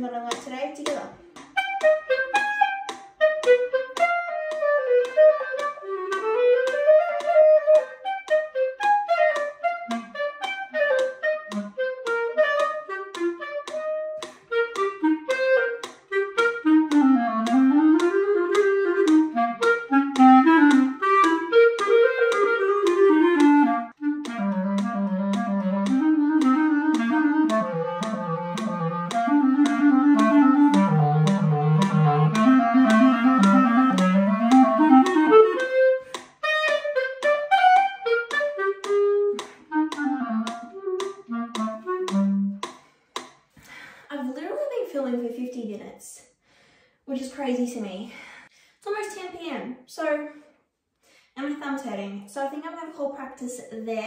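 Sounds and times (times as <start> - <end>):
solo clarinet playing: 1.5 - 42.6.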